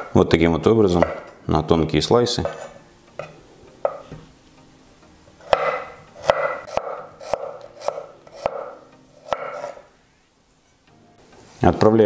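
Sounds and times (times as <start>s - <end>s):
knife slicing radishes on a board: 5.5s - 9.8s.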